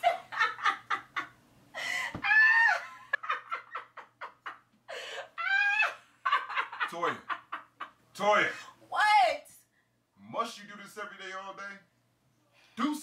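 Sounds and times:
woman laughing: 0.0s - 7.9s.

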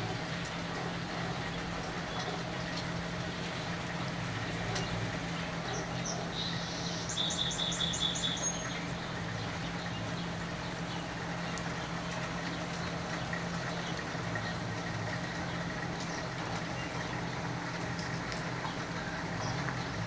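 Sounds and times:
steady rain falling: 0.0s - 20.0s
bird chirping: 5.7s - 11.1s.

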